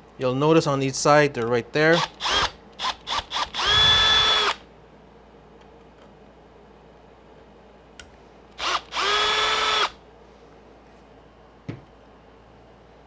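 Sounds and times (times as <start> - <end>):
cordless driver whining: 1.9 - 4.6, 8.6 - 10.0.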